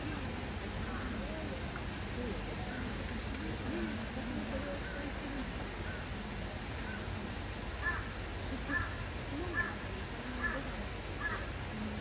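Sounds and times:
crow cawing: 7.8 - 8.1, 11.2 - 11.5.

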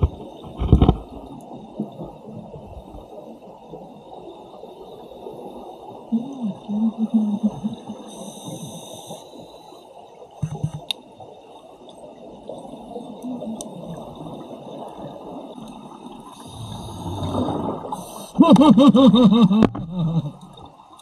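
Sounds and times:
muffled underwater rush: 0.0 - 18.4
regulator inhale hiss: 8.0 - 10.0, 17.9 - 18.4.

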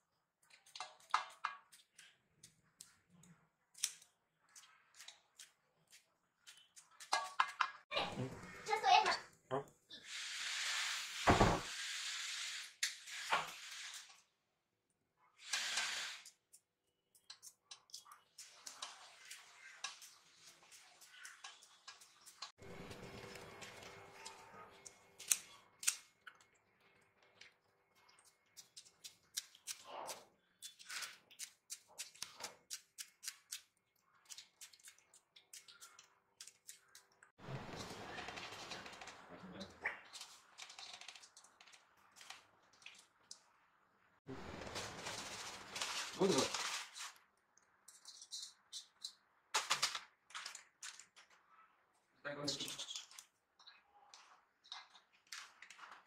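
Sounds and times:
leaves rustling: 44.4 - 47.2.

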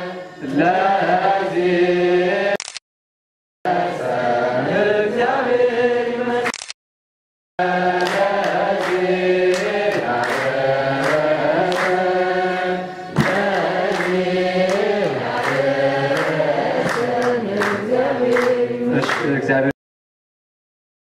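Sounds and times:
men chanting a hymn: 0.0 - 2.6, 3.7 - 6.5, 7.6 - 19.7
sharp drum beats: 13.1 - 14.1.

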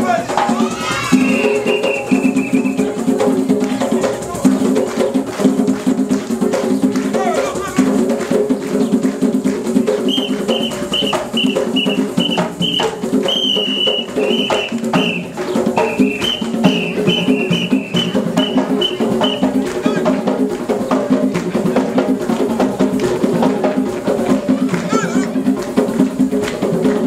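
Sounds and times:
hand drums playing fast rhythm: 0.0 - 27.0.

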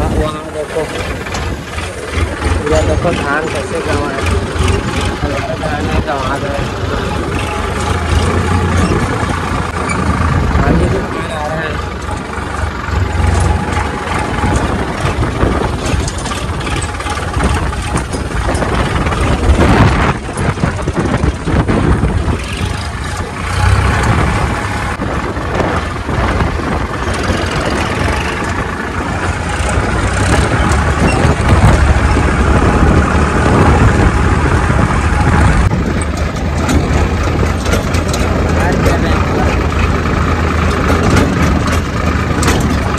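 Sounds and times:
diesel tractor engine running: 0.0 - 42.9.

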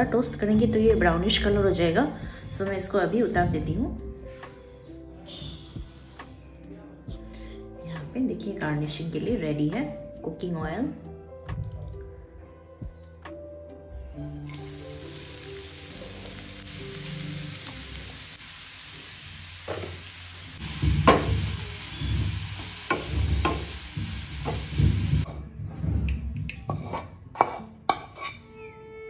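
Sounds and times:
carrots sizzling in oil: 14.3 - 25.3
spatula knocking on bowl: 22.9 - 23.7.

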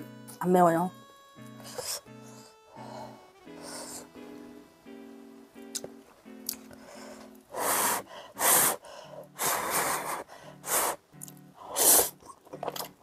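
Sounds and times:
background music: 0.0 - 13.0
noodle slurping: 9.4 - 11.0, 11.6 - 12.9.

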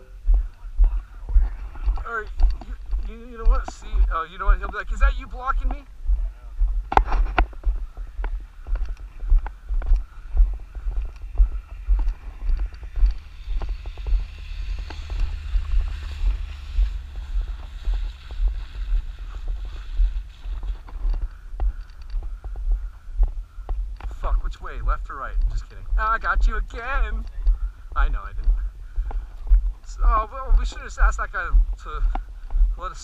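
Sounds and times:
footsteps crunching on dirt: 0.0 - 33.0
wind buffeting: 0.0 - 33.0
tyres on gravel: 0.4 - 33.0
camera jostling thumps: 0.8 - 5.9, 6.7 - 24.8.

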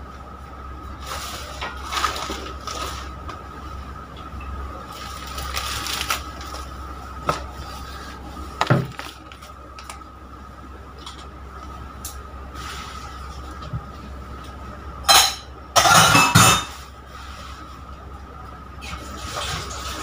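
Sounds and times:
steady low hum: 0.0 - 20.0
kitchen items knocking and clattering: 8.6 - 9.4, 15.1 - 16.7.

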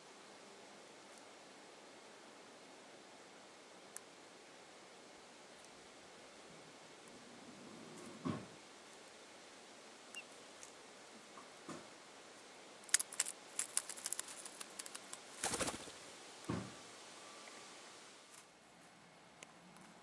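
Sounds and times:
sharp clicks and scratches: 12.9 - 15.8
straw rustling and scraping: 12.9 - 16.0.

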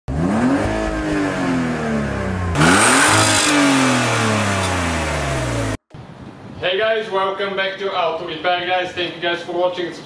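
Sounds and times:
car engine revving: 0.1 - 5.8.

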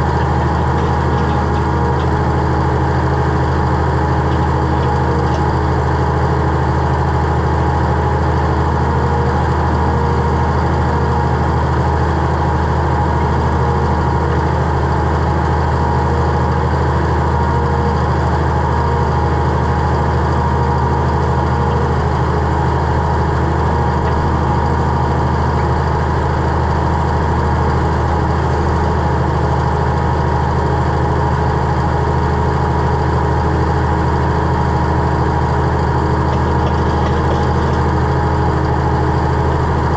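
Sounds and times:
digging machine engine running: 0.0 - 39.9.

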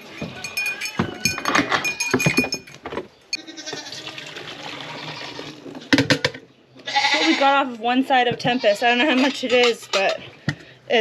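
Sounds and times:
knocks: 0.1 - 3.1
goats bleating: 3.4 - 4.2, 4.9 - 5.6, 6.8 - 7.6
milk pouring into can: 3.9 - 5.9.

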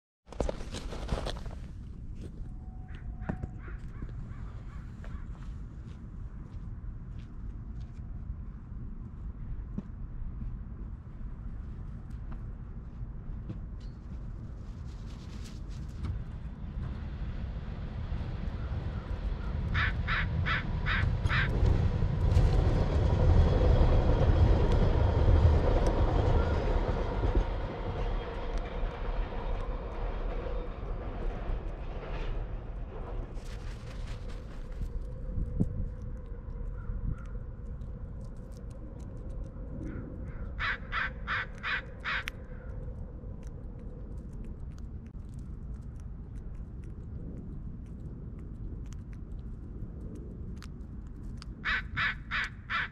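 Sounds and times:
steady low rumble: 0.7 - 52.9
crow cawing: 19.7 - 21.6, 39.9 - 42.3, 51.6 - 52.9.

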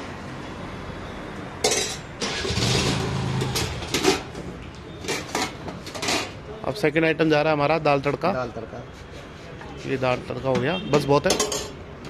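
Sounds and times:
metal trays clattering: 2.7 - 4.4, 11.2 - 11.8.

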